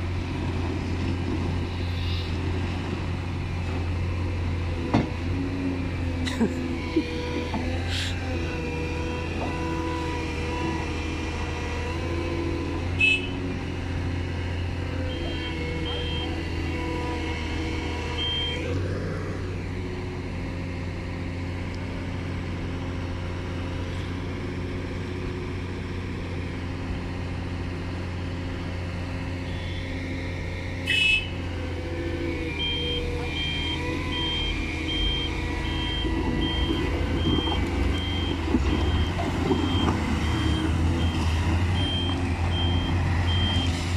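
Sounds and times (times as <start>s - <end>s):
heavy diesel engines running: 0.0s - 43.9s
reversing alarm beeping: 15.1s - 16.4s, 18.1s - 18.6s, 32.5s - 43.8s.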